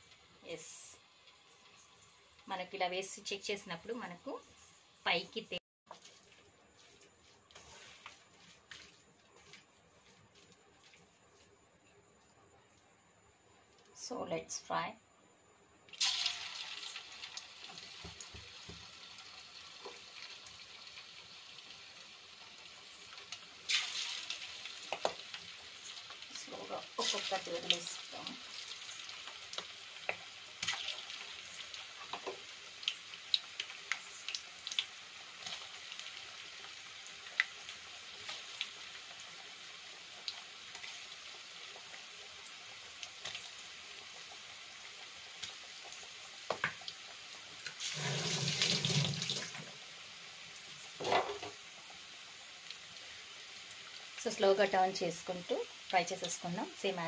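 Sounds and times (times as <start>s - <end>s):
food deep-frying in sizzling oil: 0.0s - 11.5s, 15.9s - 57.0s.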